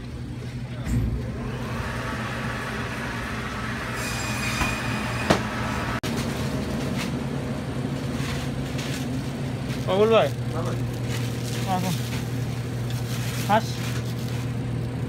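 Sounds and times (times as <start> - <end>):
machinery humming: 0.0 - 15.0
thin high whine: 3.4 - 6.0.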